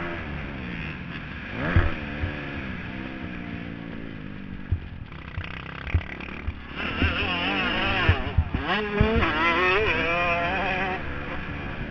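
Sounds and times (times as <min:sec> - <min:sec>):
motocross engine revving: 0:00.0 - 0:11.9
dull thumps: 0:04.7 - 0:09.4.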